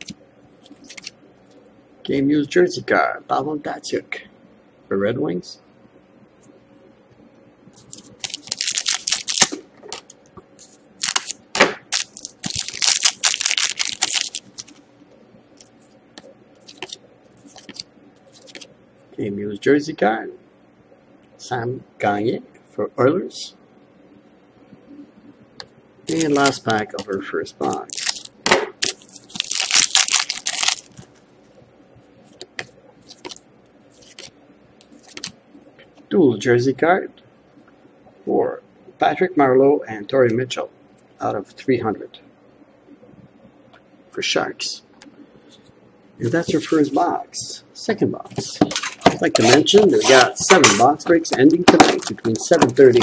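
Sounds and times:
cards clicking and rustling: 0:00.0 - 0:01.1, 0:07.8 - 0:10.1, 0:11.0 - 0:14.8, 0:16.6 - 0:18.7, 0:26.1 - 0:31.1, 0:32.4 - 0:33.4, 0:34.0 - 0:35.4, 0:48.4 - 0:53.0
foil wrapper tearing and crinkling: 0:07.8 - 0:09.6, 0:11.0 - 0:14.8, 0:26.1 - 0:26.8, 0:27.8 - 0:31.1, 0:33.0 - 0:33.4, 0:34.0 - 0:34.3, 0:51.7 - 0:53.0
cards clicking and sliding: 0:16.7 - 0:17.8, 0:34.0 - 0:35.4.

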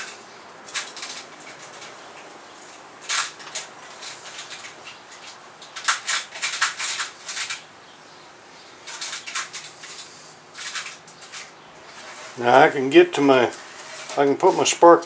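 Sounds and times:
metal tools clinking and rattling: 0:00.0 - 0:02.0.

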